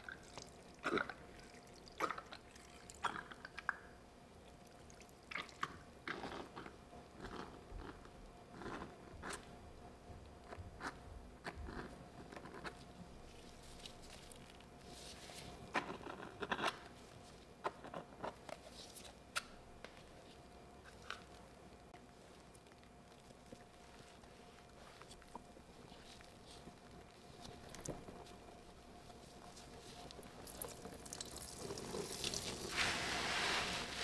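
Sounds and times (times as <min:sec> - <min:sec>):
wet sponge squelching: 0:29.1 - 0:34.0.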